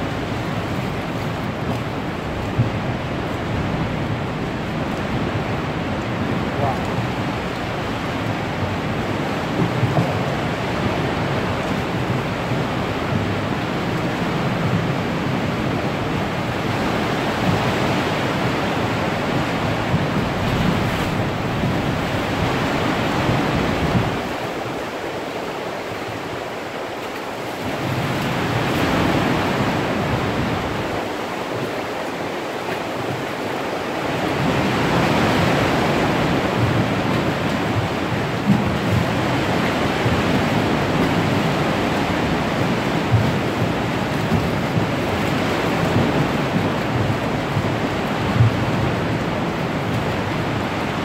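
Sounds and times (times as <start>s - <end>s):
sea water splashing against rock: 18.9s - 24.7s.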